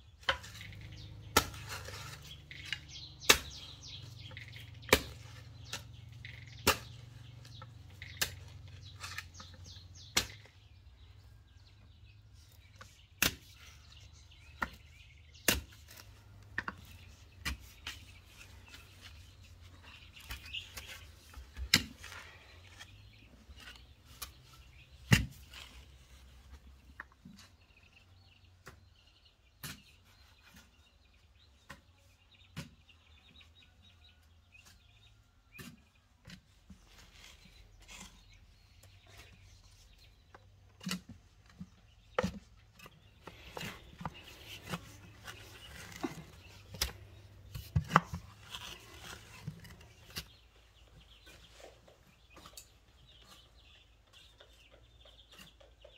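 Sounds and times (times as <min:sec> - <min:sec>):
metal blade chopping hard soil: 0:00.2 - 0:10.5.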